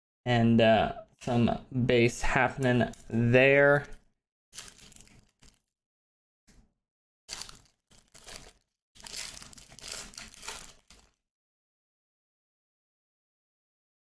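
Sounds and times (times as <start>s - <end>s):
plastic wrapper crinkling and tearing: 4.6s - 5.7s, 7.3s - 11.2s.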